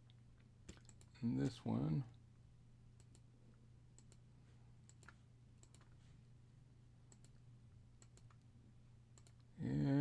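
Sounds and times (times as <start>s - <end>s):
low steady hum: 0.0s - 10.0s
faint computer mouse clicks: 3.0s - 3.3s, 4.0s - 4.2s, 4.8s - 6.0s, 7.1s - 7.4s, 8.0s - 8.4s, 9.2s - 9.5s.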